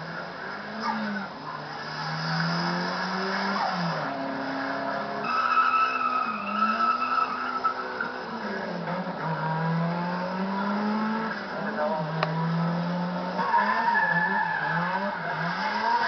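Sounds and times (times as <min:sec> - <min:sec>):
tyres squealing: 0:05.2 - 0:08.2.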